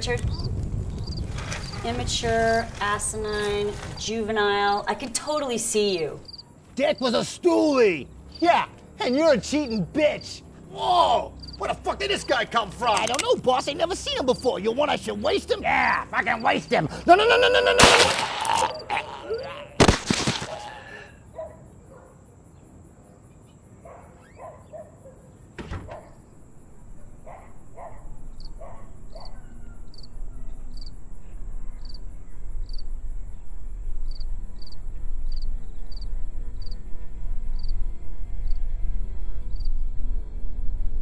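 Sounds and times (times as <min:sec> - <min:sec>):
crickets chirping: 0:00.0 - 0:41.0
gunshot: 0:17.8 - 0:18.5, 0:19.8 - 0:20.7
low drone: 0:26.4 - 0:41.0.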